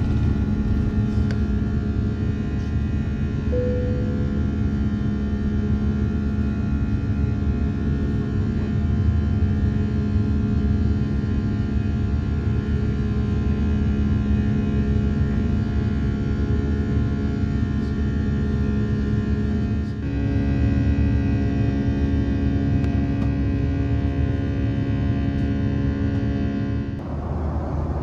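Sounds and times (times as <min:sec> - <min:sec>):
airplane cabin rumble: 0:00.0 - 0:10.8, 0:17.5 - 0:28.0
droning engine tone: 0:00.0 - 0:28.0
faint high steady tones: 0:03.5 - 0:04.7.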